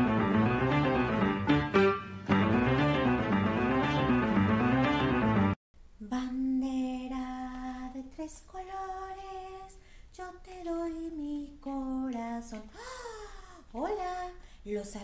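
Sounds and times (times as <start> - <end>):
instrumental music: 0.0 - 5.6
woman singing unaccompanied: 6.0 - 12.7, 13.7 - 15.0.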